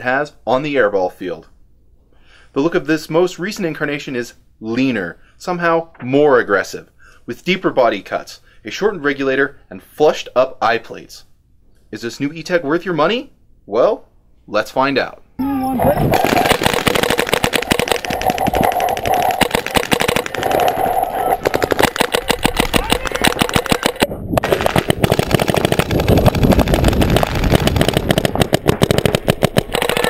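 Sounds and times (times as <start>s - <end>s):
paintball marker firing rapidly: 15.6s - 30.0s.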